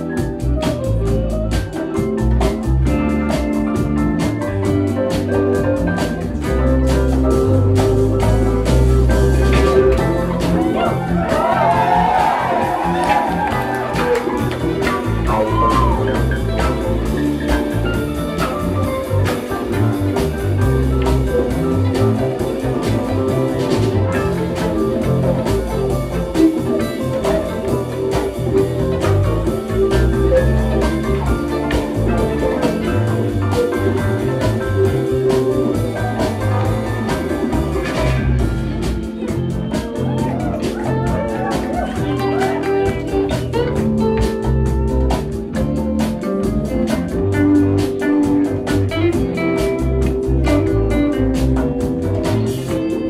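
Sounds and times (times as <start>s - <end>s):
bass guitar: 0.0s - 53.0s
drums keeping a beat: 0.0s - 53.0s
electric guitar: 0.0s - 53.0s.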